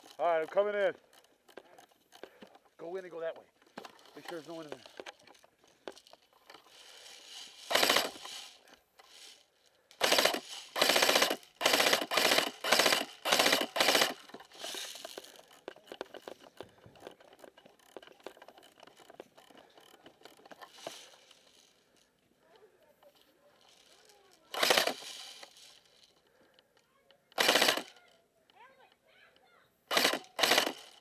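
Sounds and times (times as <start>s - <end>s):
airsoft rifle bursts: 6.5s - 9.4s, 10.0s - 21.3s, 23.6s - 26.4s, 27.2s - 28.2s, 29.9s - 31.0s.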